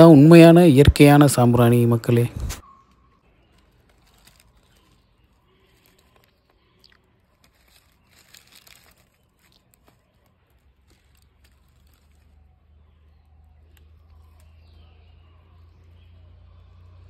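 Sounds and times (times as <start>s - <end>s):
fingers crunching brittle resin: 3.4s - 14.5s.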